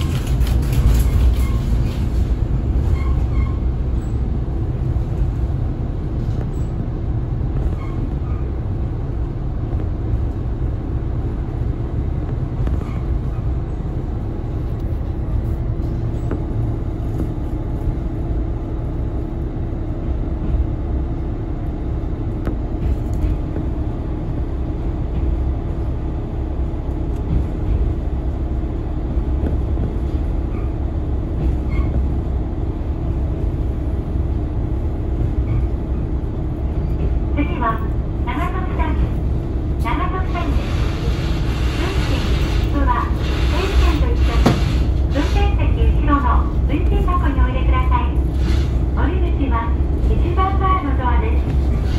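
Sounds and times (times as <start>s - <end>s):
train wheels on rails: 0.0s - 51.9s.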